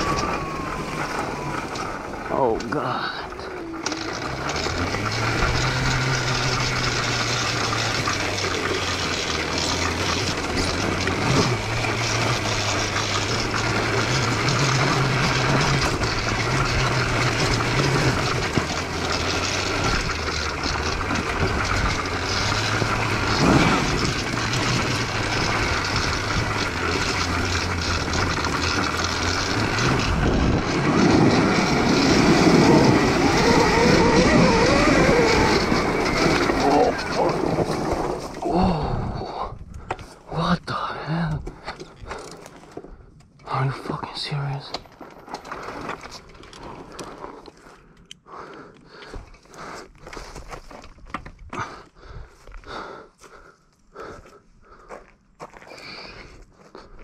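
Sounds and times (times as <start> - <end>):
electric motor drone: 0.0 - 38.9
motor whine: 0.0 - 39.1
tyres and plants rushing: 0.0 - 39.4.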